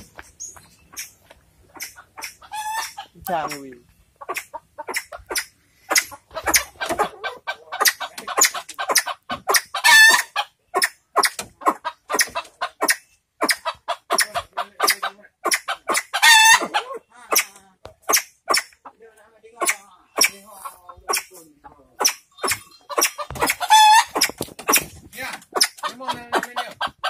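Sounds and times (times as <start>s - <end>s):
pheasants clucking: 0.0s - 27.0s
pheasant long loud calls: 0.8s - 3.6s.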